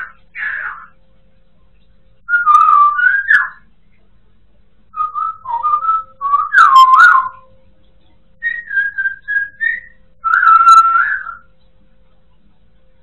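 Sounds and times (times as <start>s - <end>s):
parrot whistling: 2.3s - 3.7s, 4.9s - 7.5s, 8.4s - 11.5s.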